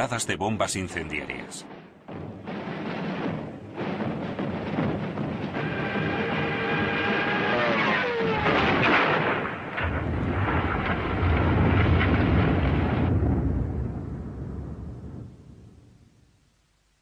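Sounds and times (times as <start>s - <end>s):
heavy rumble of explosions: 0.0s - 16.0s
falling bomb whine: 2.1s - 14.2s.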